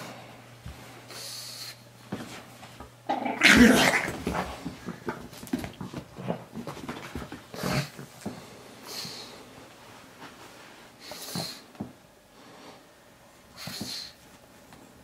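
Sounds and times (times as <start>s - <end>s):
dog growling in play: 3.1s - 4.4s.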